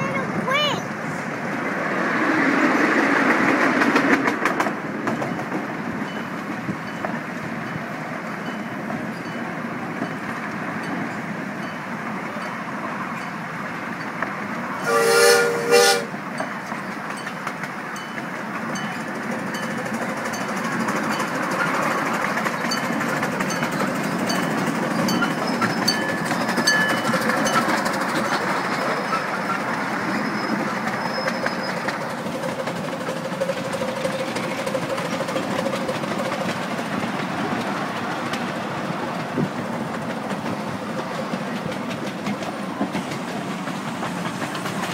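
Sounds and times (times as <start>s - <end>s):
miniature steam locomotive running: 0.0s - 1.4s, 2.2s - 44.9s
wheels clicking over rail joints: 2.2s - 14.9s, 16.3s - 44.9s
locomotive whistle: 14.8s - 16.2s, 28.9s - 32.0s.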